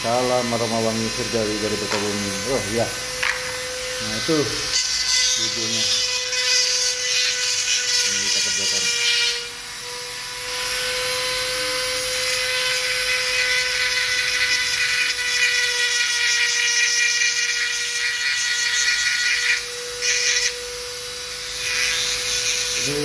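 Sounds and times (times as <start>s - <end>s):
rotary tool grinding wood: 0.0s - 9.6s, 10.4s - 23.0s.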